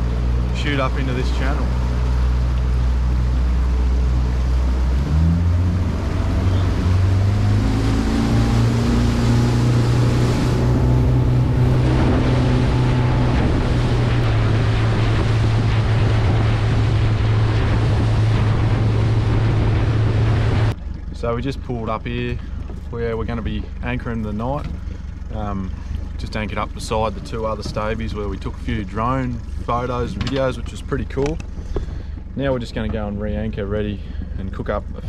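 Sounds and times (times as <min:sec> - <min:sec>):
outboard motor revving: 0:00.0 - 0:35.0
water rushing off hull: 0:00.0 - 0:35.0
wind on microphone: 0:04.6 - 0:20.8.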